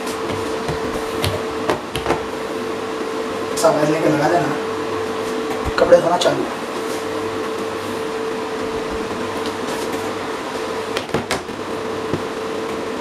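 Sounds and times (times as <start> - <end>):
background hum and hiss: 0.0 - 13.0.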